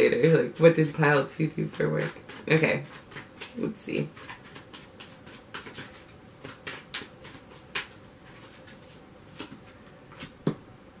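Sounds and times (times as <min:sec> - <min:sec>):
cards clicking and tapping: 0:02.3 - 0:08.0, 0:09.3 - 0:10.6.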